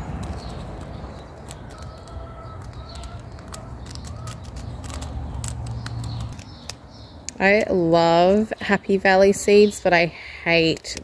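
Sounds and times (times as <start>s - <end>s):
paper seed packet rustling: 0.0s - 6.8s
fingers working seeds into soil: 0.0s - 8.6s, 10.4s - 11.0s
bird calling: 0.3s - 7.2s.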